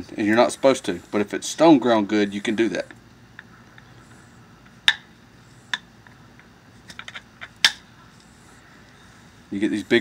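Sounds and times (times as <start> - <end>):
billet striking flint: 4.6 - 7.9.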